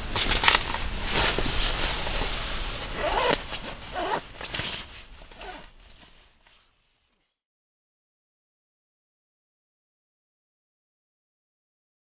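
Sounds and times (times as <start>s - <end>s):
sleeping bag rustling: 0.1s - 6.8s.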